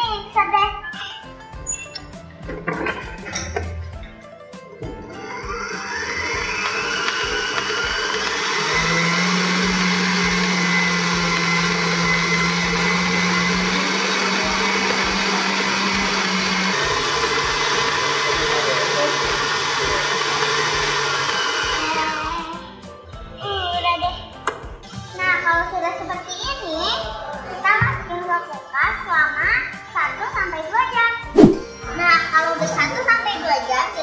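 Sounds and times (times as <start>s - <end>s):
electric stand mixer running: 4.7s - 22.7s.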